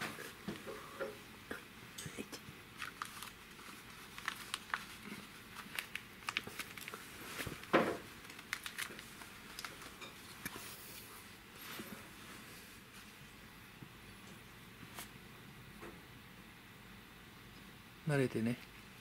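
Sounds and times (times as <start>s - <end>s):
plastic rustle: 2.7s - 13.1s
plastic collar crinkling and clicking: 2.8s - 10.6s.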